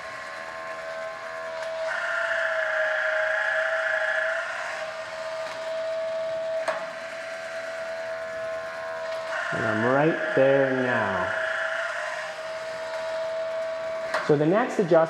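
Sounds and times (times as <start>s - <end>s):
grinder motor whining: 0.0s - 15.0s
higher whine: 7.7s - 15.0s.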